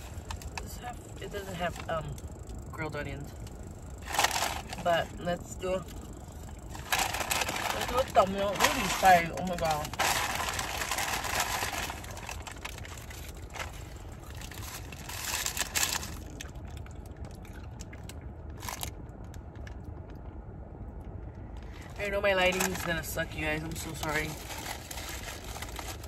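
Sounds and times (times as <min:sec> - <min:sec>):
car engine humming: 0:00.0 - 0:26.0
paper wrapper rustling: 0:04.0 - 0:04.9, 0:06.4 - 0:16.8, 0:21.7 - 0:23.0, 0:23.7 - 0:26.0.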